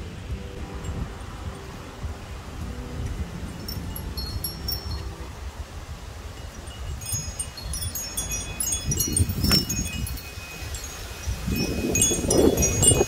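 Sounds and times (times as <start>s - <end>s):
metal wind chime ringing: 0.5s - 13.0s.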